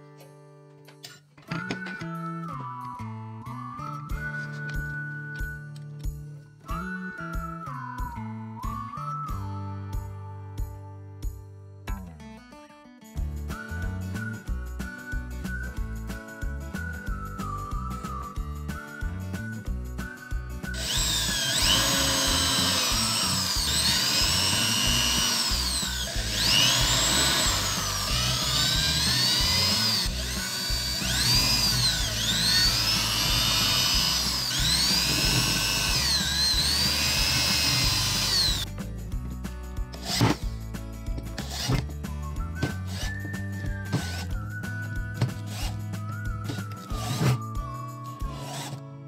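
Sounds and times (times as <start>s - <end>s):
background music: 0.0s - 49.0s
power drill boring into wood: 20.7s - 38.6s, 43.9s - 44.4s, 45.2s - 45.8s, 46.5s - 47.5s, 48.2s - 48.8s.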